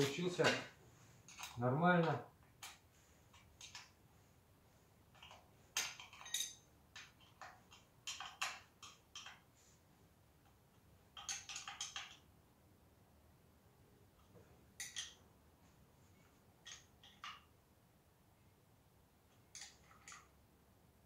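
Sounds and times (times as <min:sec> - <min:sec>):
metallic clicks and clinks: 0:05.2 - 0:09.4, 0:14.8 - 0:15.2.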